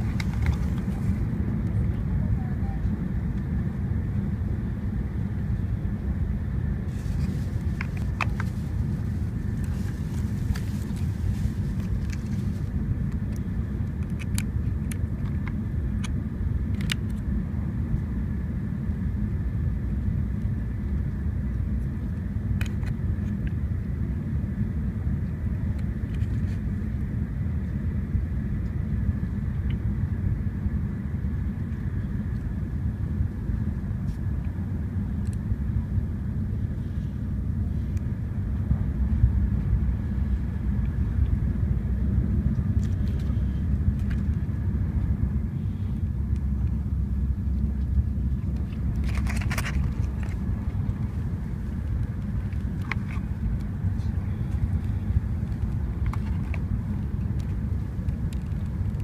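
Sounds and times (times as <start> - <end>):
faint steady whine: 0.0 - 59.0
vehicle cabin rumble: 0.0 - 59.0
packaging clicks and rustles: 6.9 - 13.4, 48.5 - 53.6, 54.8 - 57.5.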